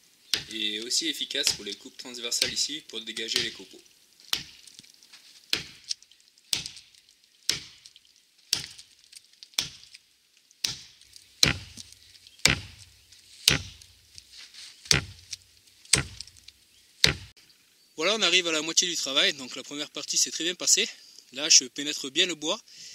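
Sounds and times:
axe chopping into tree trunk: 0:00.3 - 0:00.6, 0:04.3 - 0:04.7, 0:05.5 - 0:05.9, 0:06.5 - 0:07.8, 0:08.5 - 0:08.9, 0:09.6 - 0:09.9, 0:10.6 - 0:13.9, 0:14.9 - 0:17.3.

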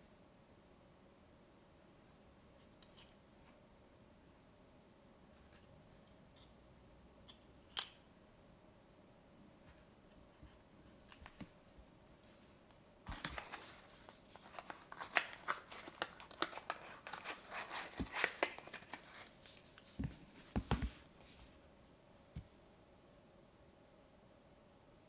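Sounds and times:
clicks and rustles of cardboard: 0:13.1 - 0:21.1.

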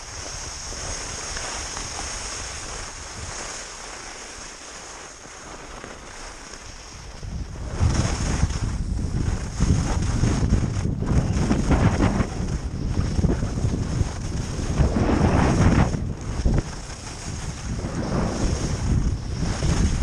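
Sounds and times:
skis scraping over snow: 0:00.0 - 0:20.0
wind buffeting microphone: 0:06.9 - 0:20.0.

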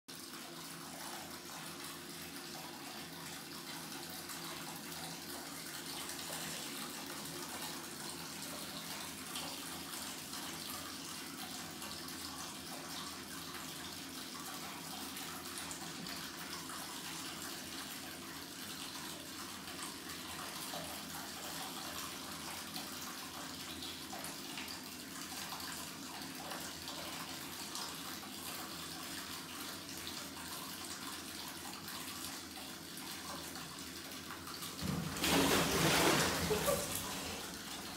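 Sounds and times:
tap water splashing into bathtub: 0:30.9 - 0:37.9.

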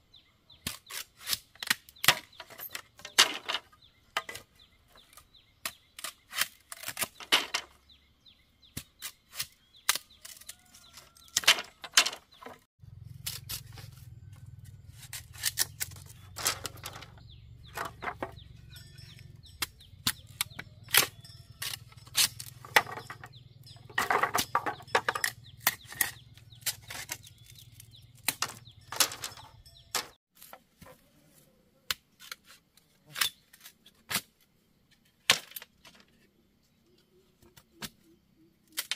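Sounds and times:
hand tool knocking bamboo: 0:11.0 - 0:12.6, 0:15.0 - 0:18.4, 0:19.0 - 0:30.2.

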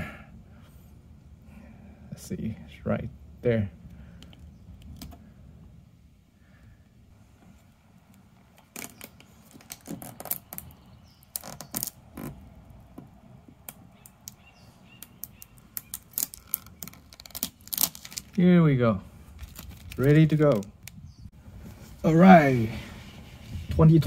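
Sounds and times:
transfer tape crackling: 0:03.8 - 0:05.3, 0:07.2 - 0:18.5, 0:19.2 - 0:21.3.

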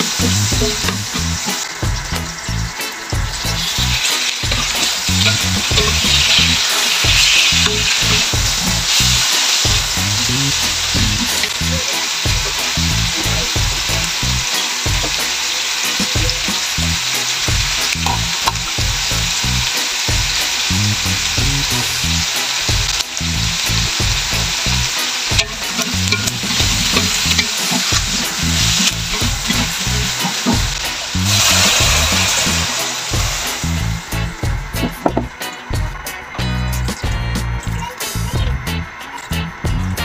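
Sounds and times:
food sizzling in a wok: 0:00.0 - 0:40.0
spatula knocking against pan: 0:25.3 - 0:30.7
wooden spatula scraping: 0:25.4 - 0:33.5.

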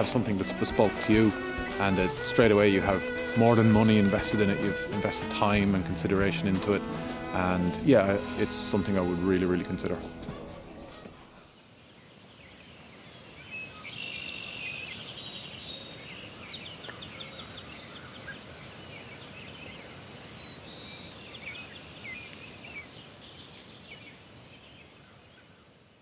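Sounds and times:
steady background hiss: 0:00.0 - 0:26.0
small birds chirping and singing: 0:10.6 - 0:25.8.

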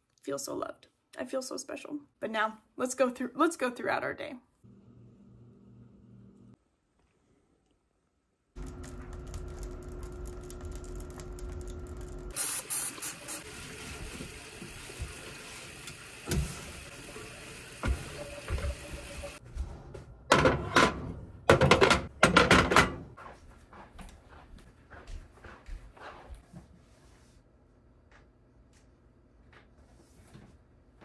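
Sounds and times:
steady hum: 0:08.6 - 0:12.4.

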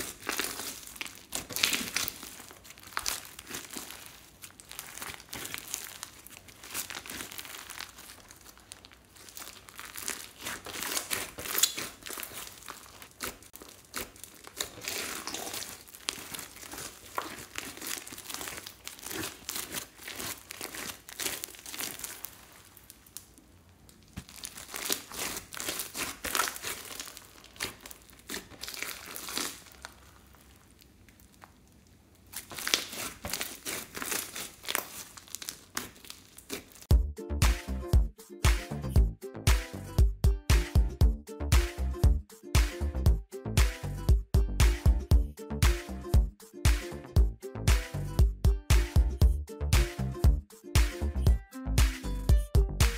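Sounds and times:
slime crackling and squishing: 0:00.0 - 0:36.9.

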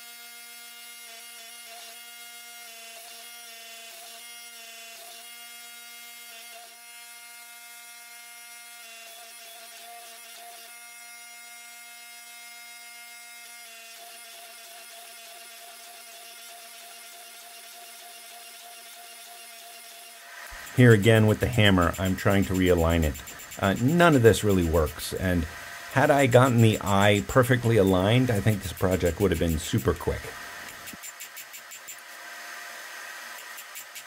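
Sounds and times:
hydraulic press motor humming: 0:20.4 - 0:32.2.

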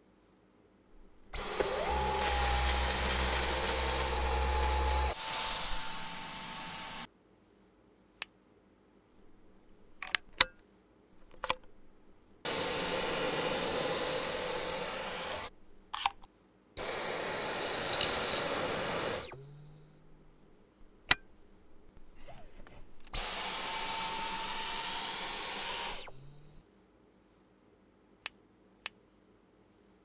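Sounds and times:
vacuum cleaner running: 0:01.4 - 0:07.1, 0:12.5 - 0:15.5, 0:16.8 - 0:19.7, 0:23.2 - 0:26.5
plastic clicks: 0:09.9 - 0:10.6, 0:11.2 - 0:11.8.

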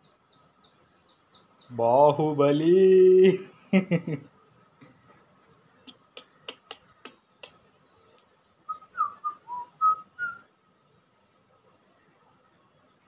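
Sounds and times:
person whistling softly: 0:08.7 - 0:10.4.

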